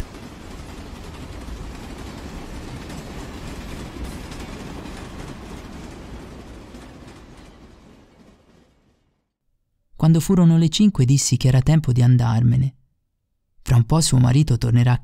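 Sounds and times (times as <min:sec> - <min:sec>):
train rumbling on rails: 0:00.0 - 0:09.2.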